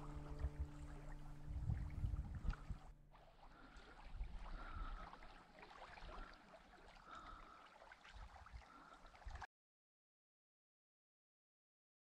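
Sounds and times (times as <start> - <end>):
low wind rumble: 0.0 - 3.0
water ticks from ripples: 0.0 - 9.5.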